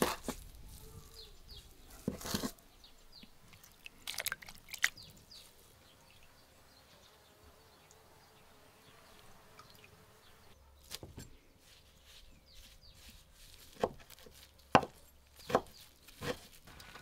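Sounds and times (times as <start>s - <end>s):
knife chopping on wooden board: 13.7s - 16.5s.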